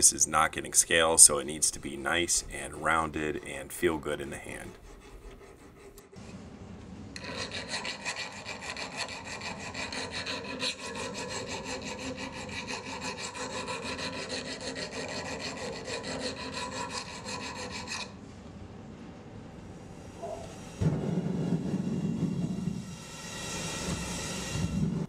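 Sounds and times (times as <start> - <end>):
file rasping on steel: 0.9 - 6.2, 7.2 - 18.2.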